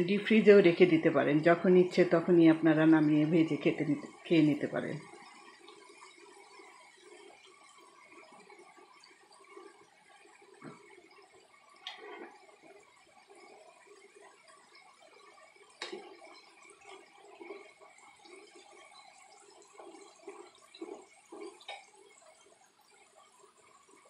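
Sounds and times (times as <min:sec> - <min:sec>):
oil bubbling sizzle: 0:00.0 - 0:24.0.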